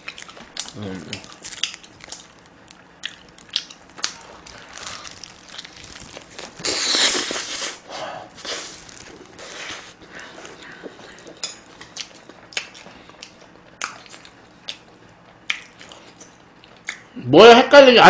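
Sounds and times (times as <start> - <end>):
person chewing: 0.0 - 17.1
wet mouth clicks: 16.8 - 17.1.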